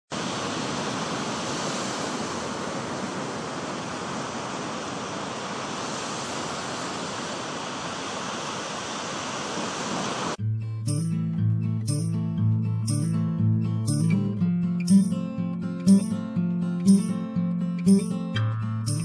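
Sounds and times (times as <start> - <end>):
ocean surf breaking on beach: 0.1 - 10.4.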